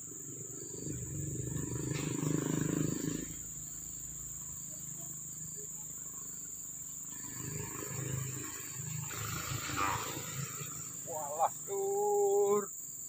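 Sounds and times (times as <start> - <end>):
insect chorus buzzing: 0.0 - 13.0
man calling out: 11.0 - 12.7.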